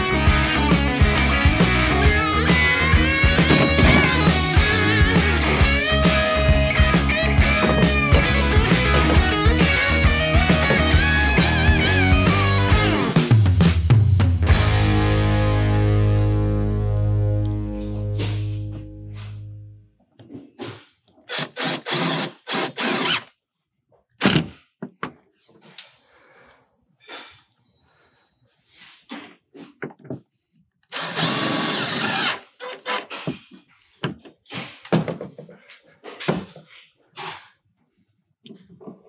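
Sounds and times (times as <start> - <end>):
power drill running: 2.2 - 4.9, 21.3 - 23.3, 30.9 - 33.0.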